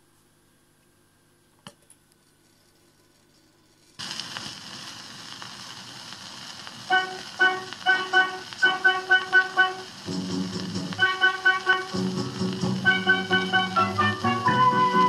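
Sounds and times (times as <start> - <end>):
record surface hiss and crackle: 0.0 - 15.0
music from record: 6.7 - 15.0.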